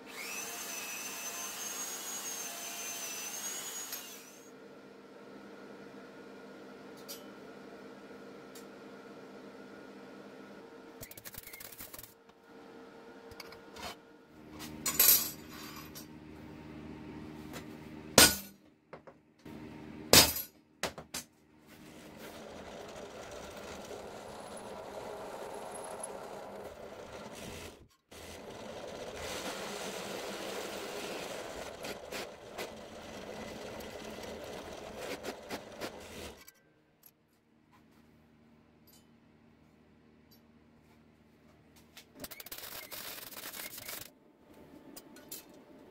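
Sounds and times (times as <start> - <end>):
drill press drilling metal: 21.8 - 36.4.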